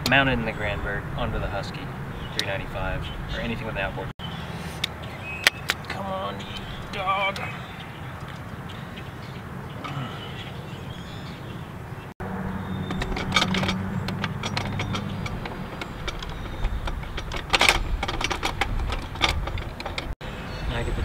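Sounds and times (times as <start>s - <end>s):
metal clicks and clinks: 12.8s - 20.2s.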